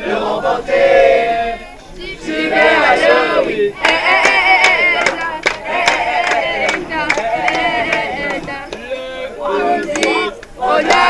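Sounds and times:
teenagers chanting and shouting: 0:00.0 - 0:11.0
hand claps: 0:03.8 - 0:08.9, 0:09.8 - 0:11.0.

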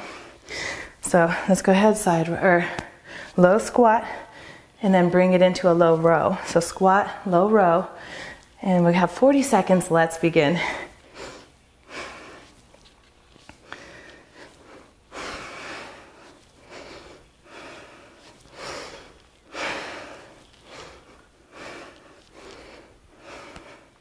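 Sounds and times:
woman breathing hard: 0:00.0 - 0:01.5, 0:02.6 - 0:03.4, 0:04.0 - 0:04.8, 0:08.0 - 0:08.5, 0:13.6 - 0:24.0.

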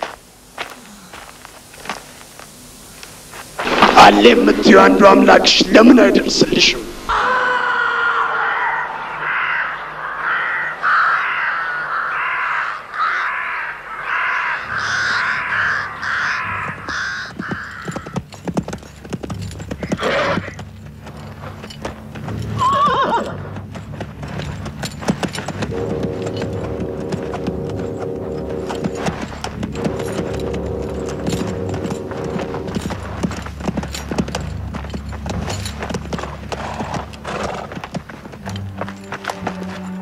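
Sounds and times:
hooves on sand: 0:00.0 - 0:04.5, 0:14.1 - 0:40.0
music: 0:17.6 - 0:40.0
horse neighing: 0:19.8 - 0:20.6, 0:22.5 - 0:23.6.

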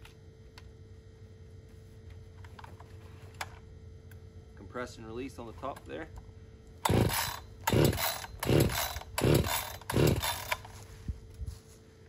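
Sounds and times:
chainsaw engine turning over: 0:06.8 - 0:10.9.

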